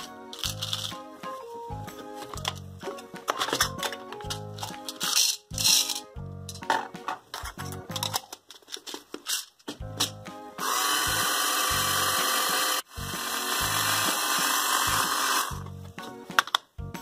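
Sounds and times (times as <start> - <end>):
background music: 0.0 - 8.4, 9.7 - 17.0
toy blender motor whirring: 10.6 - 15.6.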